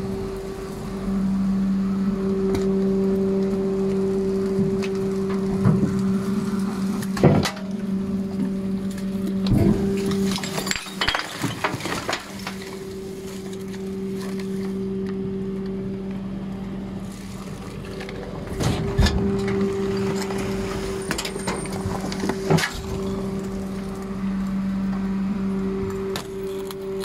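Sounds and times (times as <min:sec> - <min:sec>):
clanks and crunches of waste: 0:03.8 - 0:16.2, 0:17.0 - 0:24.2
hydraulic drive hum: 0:12.3 - 0:27.0.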